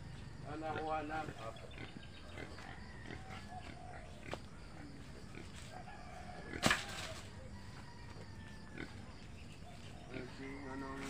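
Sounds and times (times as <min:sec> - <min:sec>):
rooster crowing: 0:02.5 - 0:04.1, 0:05.6 - 0:09.2, 0:10.3 - 0:11.0.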